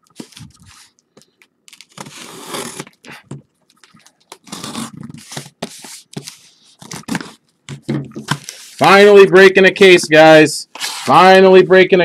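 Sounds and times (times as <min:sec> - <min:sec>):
packaging tearing: 0:01.7 - 0:03.1, 0:04.3 - 0:05.5, 0:06.8 - 0:07.4.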